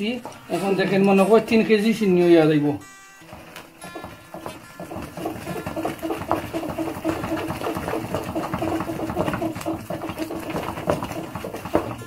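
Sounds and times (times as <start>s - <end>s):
spatula scraping in frying pan: 3.3s - 12.0s.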